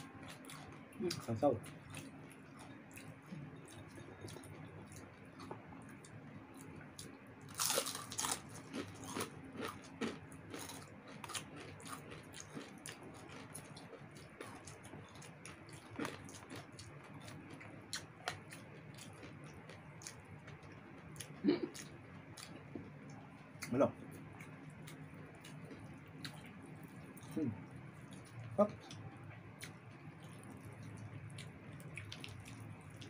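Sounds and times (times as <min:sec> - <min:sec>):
crunching and chewing fried chicken: 0:00.0 - 0:33.0.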